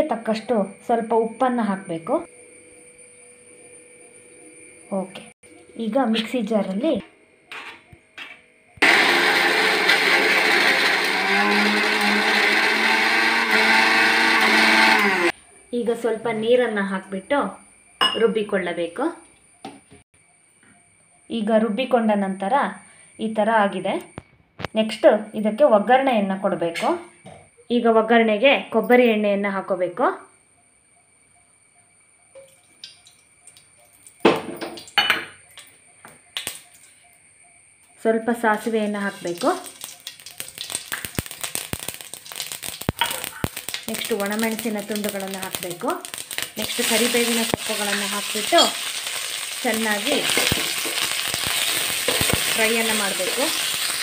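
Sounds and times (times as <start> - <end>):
electric mixer grinder running: 8.8 - 15.4.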